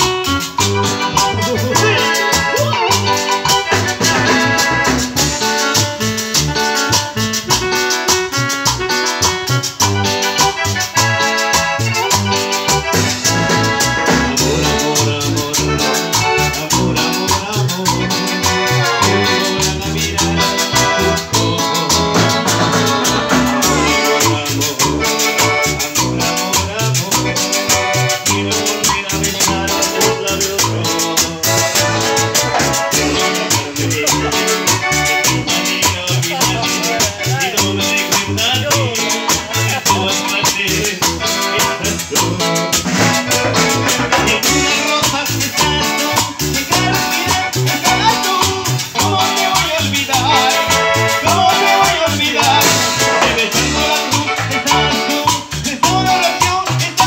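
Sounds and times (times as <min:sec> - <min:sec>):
bass line: 0:00.0 - 0:57.0
electronic keyboards: 0:00.0 - 0:57.0
steady dance beat: 0:01.2 - 0:03.4, 0:42.2 - 0:44.8.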